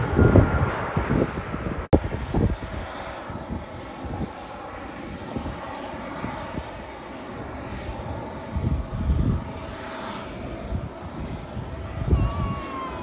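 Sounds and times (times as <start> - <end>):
low rumble: 0.0 - 4.4
jet engines rushing: 0.0 - 13.0.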